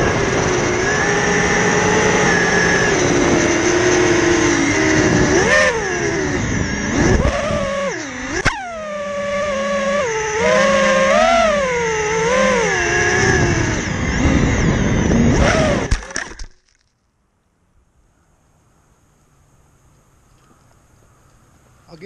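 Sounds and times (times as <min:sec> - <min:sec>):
drone motors whining: 0:00.0 - 0:16.6.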